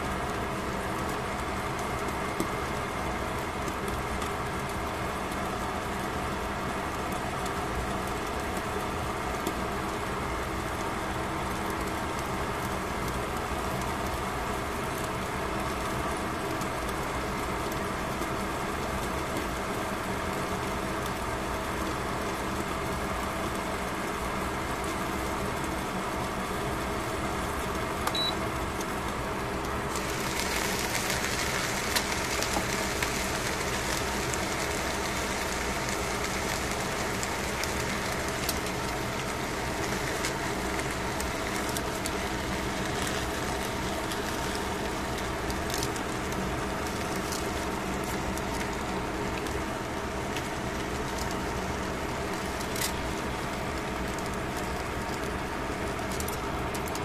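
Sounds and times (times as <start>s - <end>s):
steady hum: 0.0s - 57.0s
fish sizzling in a pan: 28.6s - 57.0s.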